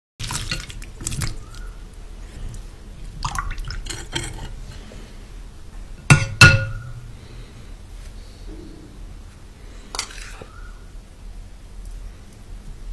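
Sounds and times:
water sloshing: 0.2 - 1.7
spoon clinking on glass bowl: 6.1 - 6.9.

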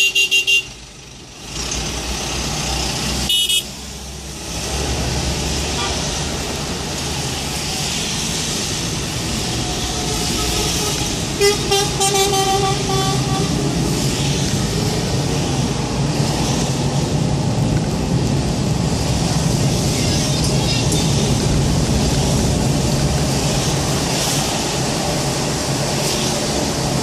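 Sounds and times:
vehicle horn honking: 0.0 - 0.7, 3.3 - 3.7, 10.0 - 13.6
car driving on wet road: 0.2 - 27.0.

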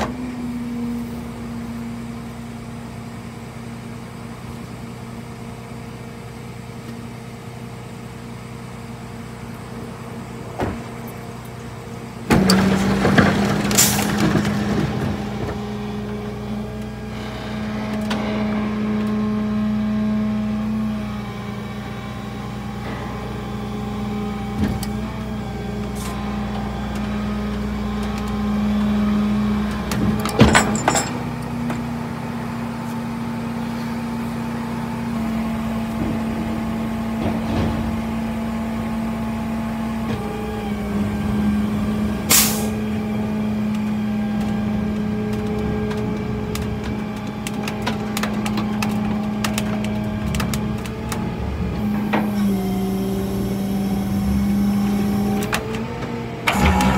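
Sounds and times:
truck engine running: 0.0 - 56.9
sharp knocks clattering: 30.0 - 31.2.

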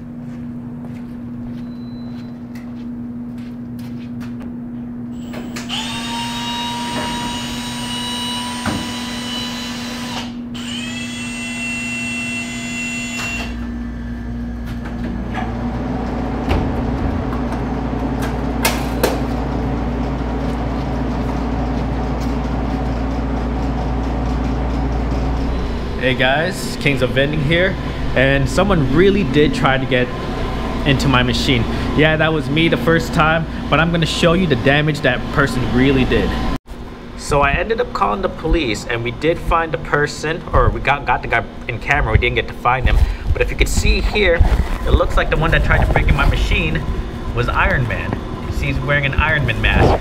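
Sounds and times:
electrical hum: 0.0 - 50.0
electric drill whining: 5.1 - 13.6
low rumble: 14.4 - 34.3, 41.9 - 50.0.

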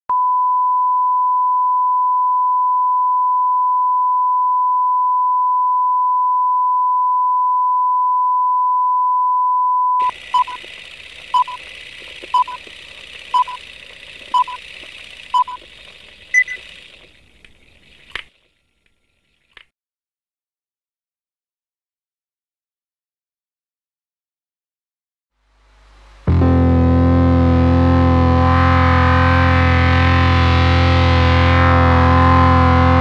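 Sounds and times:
higher beep: 0.1 - 10.7, 11.3 - 11.6, 12.3 - 12.7, 13.3 - 13.6, 14.3 - 14.6, 15.3 - 15.6, 16.3 - 16.6
short beeps: 0.1 - 10.7, 11.3 - 11.6, 12.3 - 12.7, 13.3 - 13.6, 14.3 - 14.6, 15.3 - 15.6, 16.3 - 16.7
test tone: 9.6 - 10.7, 11.3 - 13.7, 14.3 - 15.7, 16.3 - 16.7.

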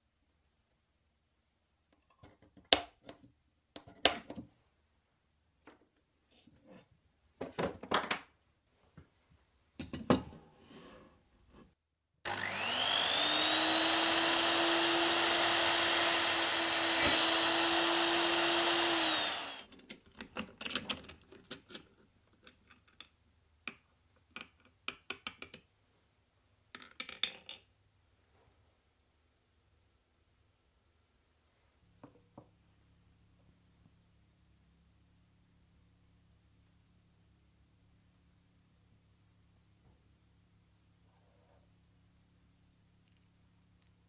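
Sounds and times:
drill press motor whining: 12.3 - 19.7.

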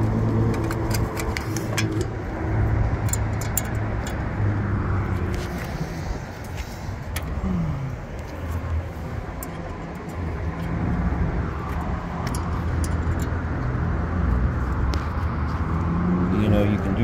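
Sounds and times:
vehicle engine humming: 0.0 - 17.0
allen wrenches clicking: 0.3 - 2.2, 2.9 - 4.4, 11.6 - 13.4.

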